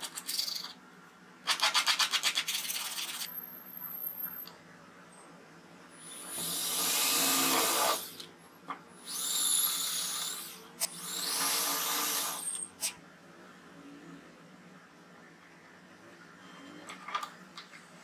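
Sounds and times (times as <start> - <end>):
electric drill boring into wood: 6.1 - 8.2, 9.1 - 12.6.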